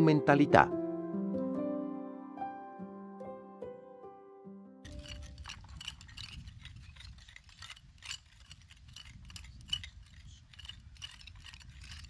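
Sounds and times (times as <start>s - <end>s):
grit clinking: 4.9s - 12.0s
trowel scraping through soil: 4.9s - 12.0s.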